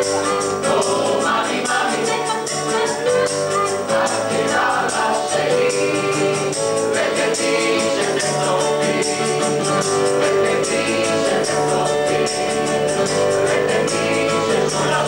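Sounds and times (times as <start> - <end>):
mixed choir singing: 0.0 - 15.0
quick percussion beat: 0.0 - 15.0.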